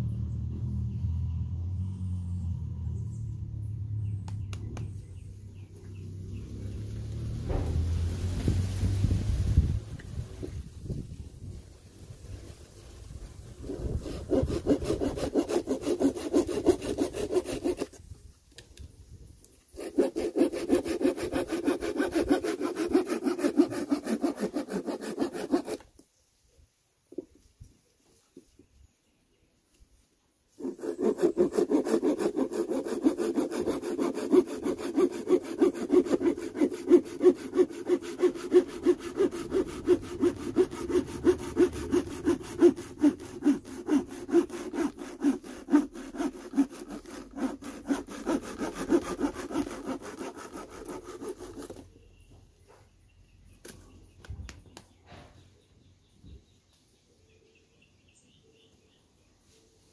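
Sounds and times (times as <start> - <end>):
hand saw cutting stick: 7.4 - 7.8, 13.6 - 18.1, 19.7 - 25.9, 30.6 - 52.0.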